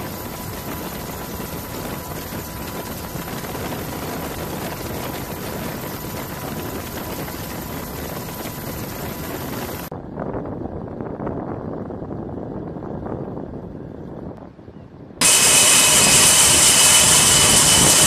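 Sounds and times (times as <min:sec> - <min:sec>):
thin constant whine: 0:00.0 - 0:09.9, 0:15.2 - 0:18.0
helicopter engine and rotor noise: 0:00.0 - 0:10.1, 0:15.2 - 0:18.0
wind rumble on microphone: 0:00.0 - 0:18.0.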